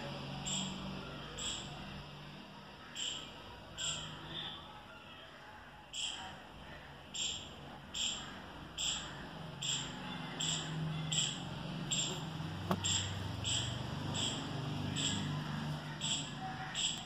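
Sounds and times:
bird chirping: 0.4s - 1.8s, 2.9s - 4.6s, 7.1s - 17.0s.

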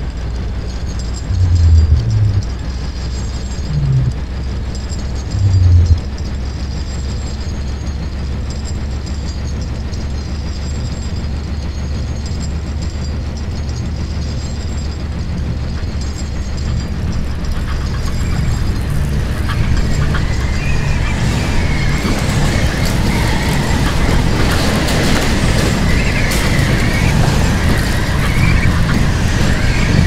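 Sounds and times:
crackling ticks: 0.0s - 6.9s, 9.9s - 30.0s
low rumbling drone: 0.6s - 7.4s, 13.6s - 30.0s
faint high tones: 1.3s - 2.5s, 3.7s - 4.2s, 5.3s - 6.0s.

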